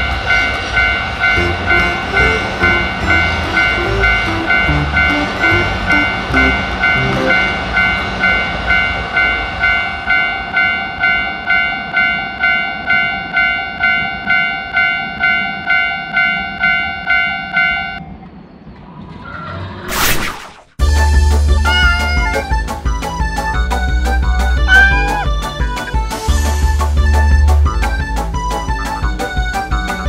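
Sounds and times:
railroad crossing bell ringing: 0.0s - 18.0s, 21.6s - 25.7s
train rumbling past: 0.0s - 19.9s, 20.8s - 30.0s.

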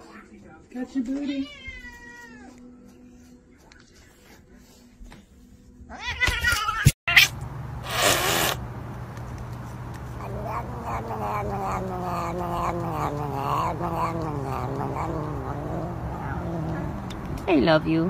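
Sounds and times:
cat vocalizing: 10.0s - 17.4s.

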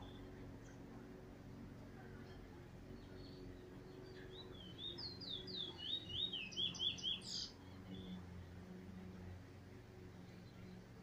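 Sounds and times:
faint low hum: 0.0s - 11.0s
bullfinch whistling song: 3.0s - 8.1s.

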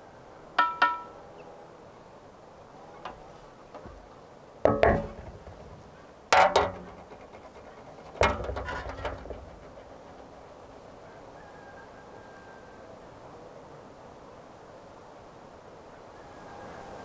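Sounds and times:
metal lid and tray clanking: 4.7s - 10.3s
metal rattle: 4.7s - 10.8s.

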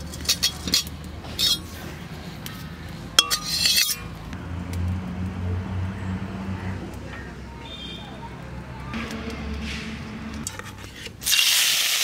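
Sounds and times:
metal ladle scraping a wok: 0.0s - 4.2s, 9.6s - 11.6s.

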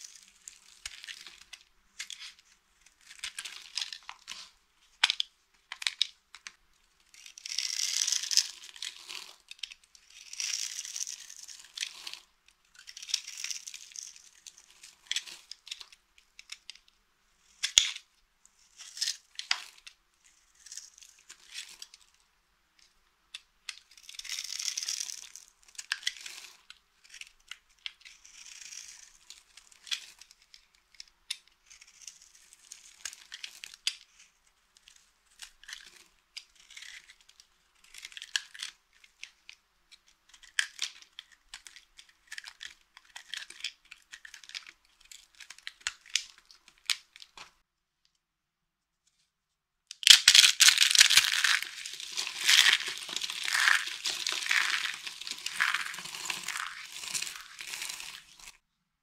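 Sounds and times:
knife scraping soap: 7.1s - 12.2s, 23.9s - 34.3s, 34.9s - 39.2s, 51.4s - 58.6s.

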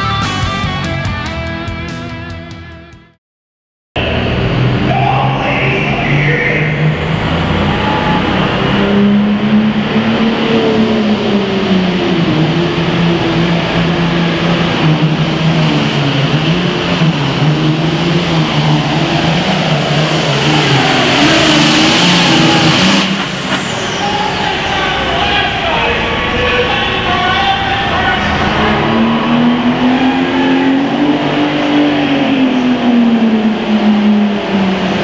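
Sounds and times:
tractor engine running hard: 4.0s - 35.0s
high turbo whistle: 7.2s - 10.8s, 20.6s - 32.0s.

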